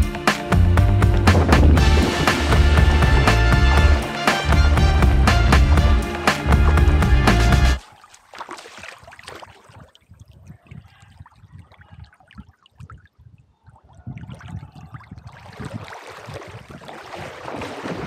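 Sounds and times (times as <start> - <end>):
water splashing from dog swimming: 5.5 - 18.0.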